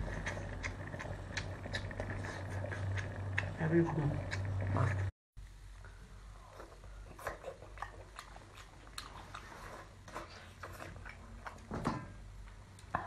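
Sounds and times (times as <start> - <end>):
person chewing with wet smacks: 0.0 - 4.8, 6.5 - 11.7.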